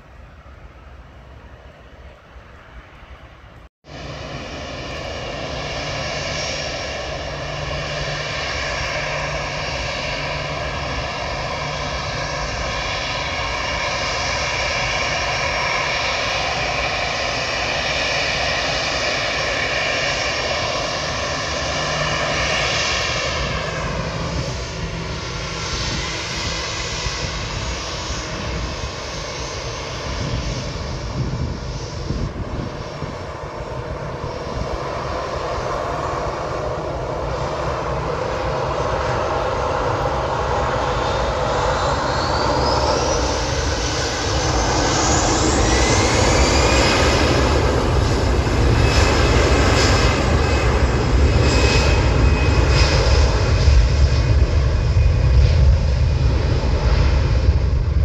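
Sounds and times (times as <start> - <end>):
jet engines whining: 0.0 - 58.0.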